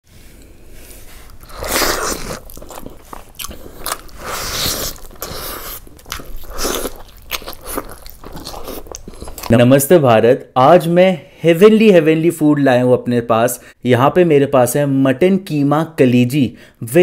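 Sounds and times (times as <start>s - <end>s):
person biting and chewing: 1.2s - 9.5s.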